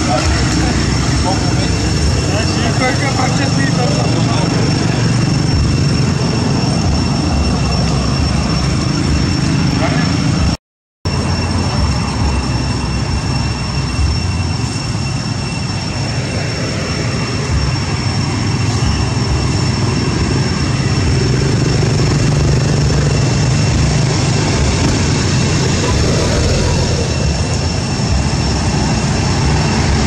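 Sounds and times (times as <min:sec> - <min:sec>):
high-pitched whine: 0:00.0 - 0:30.0
loud low rumbling: 0:18.8 - 0:30.0.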